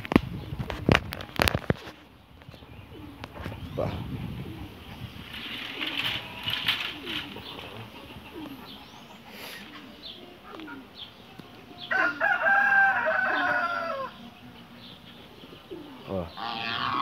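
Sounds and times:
rooster crowing: 0:11.8 - 0:14.3.

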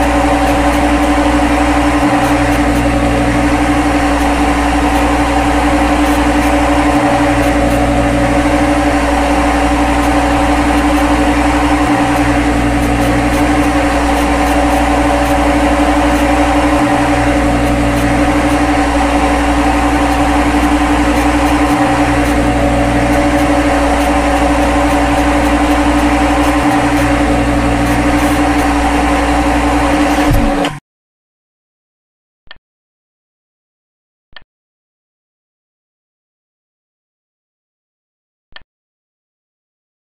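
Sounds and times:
loud machine drone with tones: 0:00.0 - 0:30.8.

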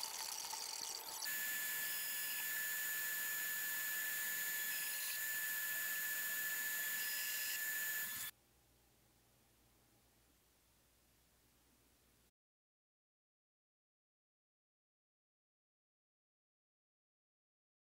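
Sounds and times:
belt grinder whining: 0:00.0 - 0:08.3.

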